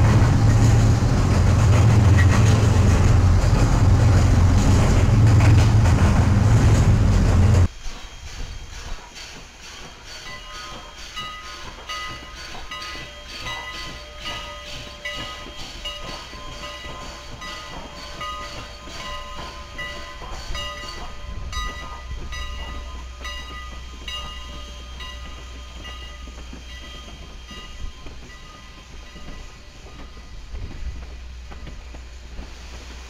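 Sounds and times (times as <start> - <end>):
low train rumble: 0.0 - 33.0
locomotive bell ringing: 10.0 - 30.4.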